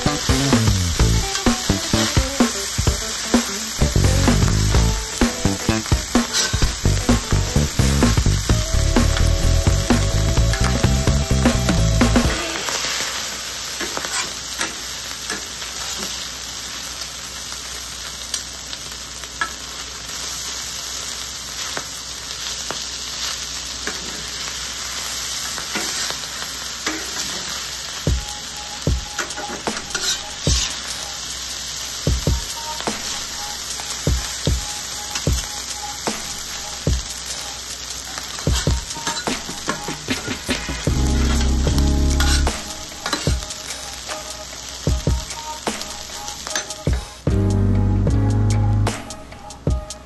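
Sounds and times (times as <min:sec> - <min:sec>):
rice sizzling on griddle: 0:00.0 - 0:47.4
metal spatulas scraping: 0:06.2 - 0:06.6.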